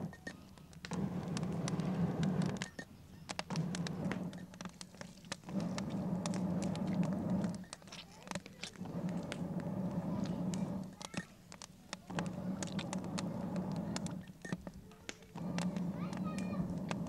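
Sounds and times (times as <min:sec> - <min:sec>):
wood fire crackling: 0:00.0 - 0:17.0
rushing surges of air: 0:00.9 - 0:02.6, 0:03.5 - 0:04.5, 0:05.4 - 0:07.6, 0:08.7 - 0:11.0, 0:12.1 - 0:14.3, 0:15.3 - 0:17.0.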